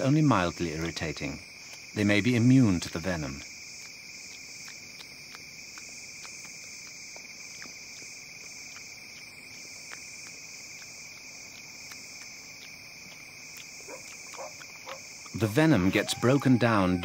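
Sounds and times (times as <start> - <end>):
crickets trilling: 0.0 - 17.0.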